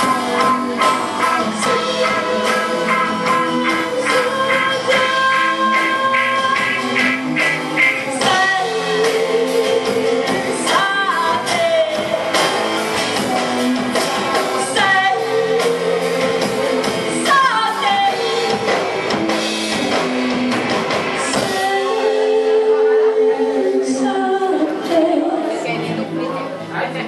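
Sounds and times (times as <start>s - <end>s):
person singing: 0.0s - 12.4s, 13.5s - 25.7s
live rock band playing: 0.0s - 26.7s
drum hits: 2.0s - 8.6s.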